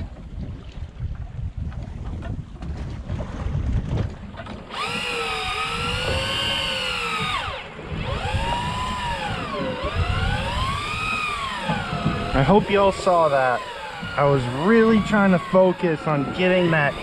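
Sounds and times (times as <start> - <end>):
water rumble: 0.0 - 17.0
wind: 0.0 - 17.0
small electric motor whining: 4.7 - 17.0.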